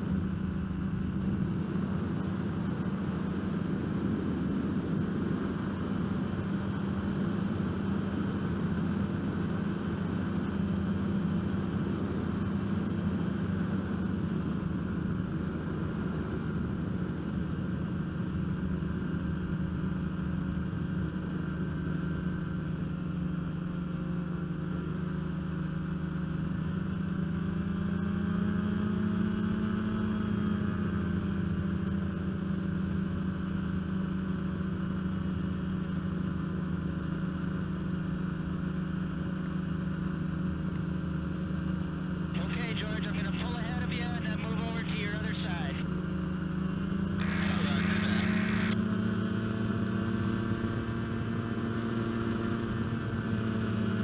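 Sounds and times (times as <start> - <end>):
light aircraft engine droning: 0.0 - 54.0.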